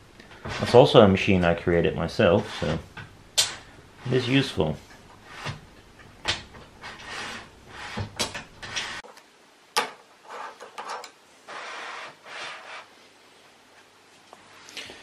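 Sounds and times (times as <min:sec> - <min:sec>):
nuts scraping along metal slot: 0:06.8 - 0:09.0.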